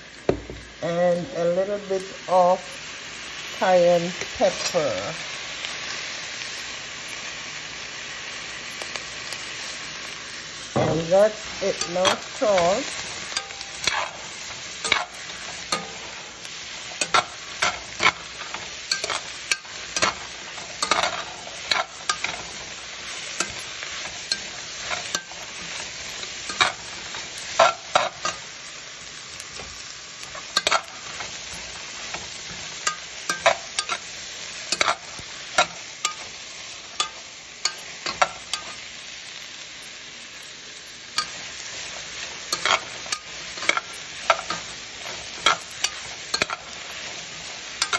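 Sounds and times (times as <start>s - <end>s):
vegetables sizzling in a pan: 0.0s - 47.9s
spatula scraping and knocking pan: 10.7s - 28.6s, 29.2s - 38.8s, 41.2s - 47.9s.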